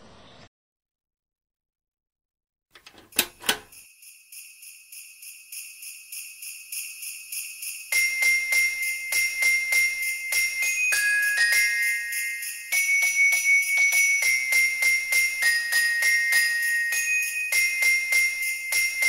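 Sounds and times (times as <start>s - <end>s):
sleigh bells jingling: 3.1s - 19.0s.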